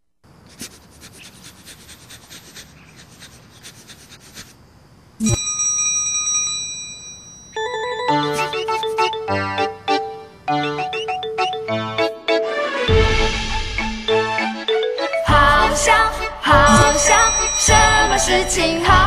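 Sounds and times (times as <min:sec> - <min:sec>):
bright chime ringing: 0:05.2 - 0:09.2, 0:16.7 - 0:18.6
keyboard melody: 0:07.6 - 0:19.0.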